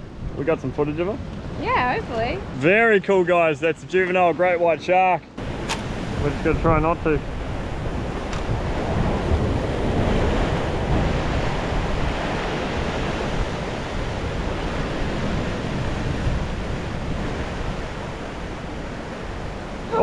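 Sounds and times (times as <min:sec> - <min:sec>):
ocean surf breaking: 0:00.0 - 0:03.3, 0:05.4 - 0:20.0
wind noise on microphone: 0:05.4 - 0:20.0.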